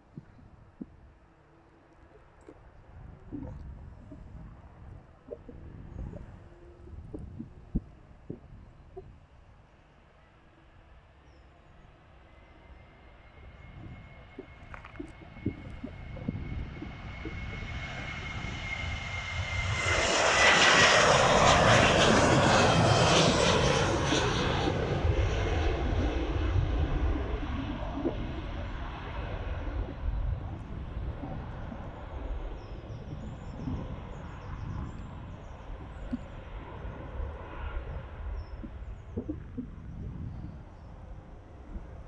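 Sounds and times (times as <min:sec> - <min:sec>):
jet engines at take-off: 0:02.8 - 0:42.0
high engine whine: 0:12.0 - 0:42.0.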